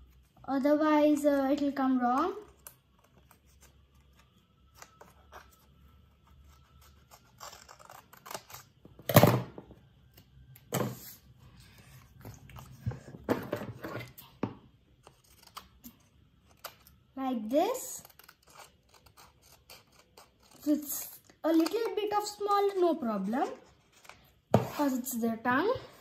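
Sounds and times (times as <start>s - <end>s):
scissors snipping paper: 2.1s - 8.7s, 15.0s - 16.9s, 17.6s - 22.3s.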